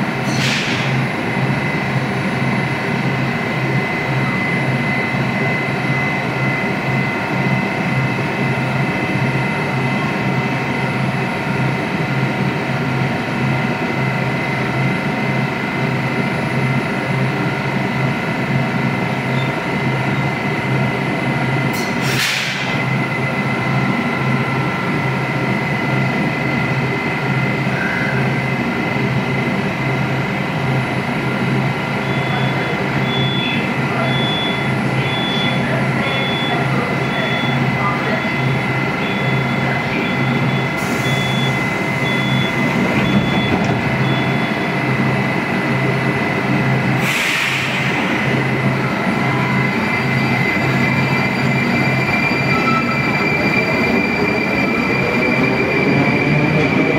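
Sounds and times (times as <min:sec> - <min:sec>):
train equipment hum and whine: 0:00.0 - 0:56.9
faint high beeps: 0:32.0 - 0:44.7, 0:50.3 - 0:53.4.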